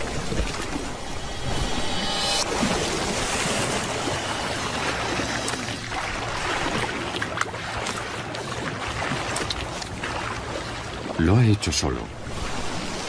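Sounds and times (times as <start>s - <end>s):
water splashing and churning: 0.0s - 13.0s.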